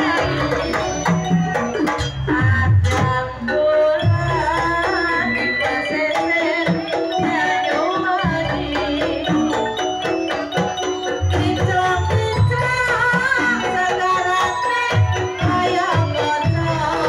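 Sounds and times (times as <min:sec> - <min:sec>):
wavering melody line: 0:00.0 - 0:02.6, 0:03.5 - 0:17.0
hand drums fast rhythm: 0:03.8 - 0:17.0.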